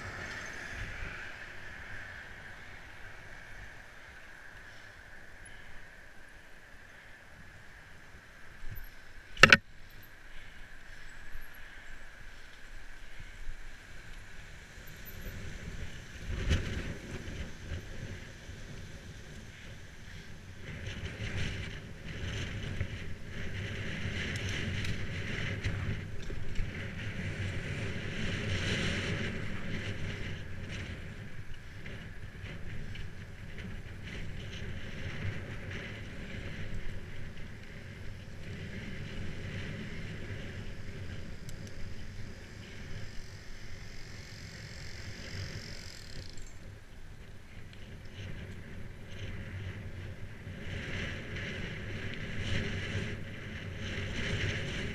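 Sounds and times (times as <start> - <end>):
bicycle tyre rumble: 0.0 - 54.9
bicycle rattling and knocks: 8.7 - 10.1
wind buffeting microphone: 12.9 - 54.9.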